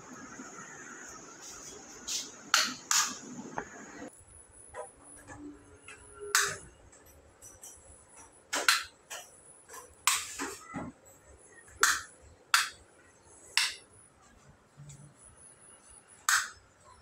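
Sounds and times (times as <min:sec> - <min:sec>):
wall switches clicking: 0:13.6 - 0:13.8.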